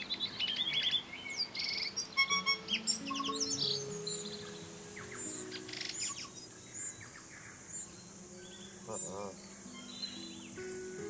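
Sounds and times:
soft music of low notes: 0.0s - 11.0s
bird chirps and whistles: 0.4s - 7.1s
gurgling bird call: 0.8s - 7.1s.

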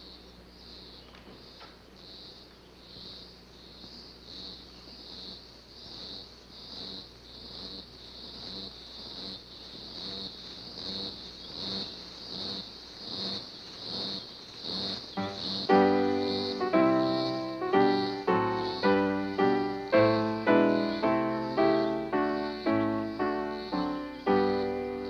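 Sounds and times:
high chirring pulse: 15.2s - 25.0s.

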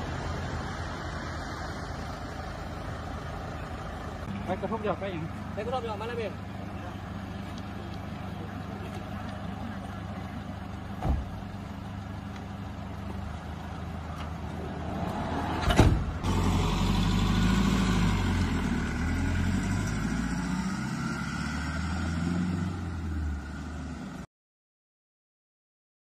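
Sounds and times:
van engine running: 0.0s - 24.3s
sharp thump: 11.0s - 11.4s, 15.5s - 16.2s.

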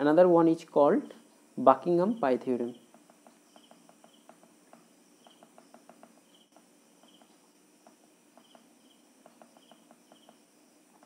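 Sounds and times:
faint rapid chirping and ticking: 2.7s - 10.6s.

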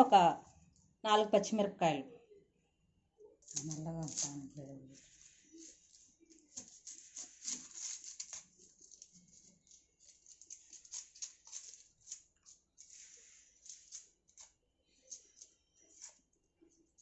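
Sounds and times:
onion skins crackling and rustling: 3.4s - 16.3s.

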